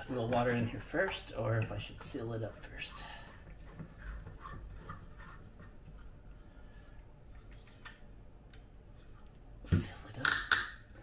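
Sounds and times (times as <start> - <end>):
metal lamp scraping and rubbing: 0.0 - 7.8, 8.9 - 9.4.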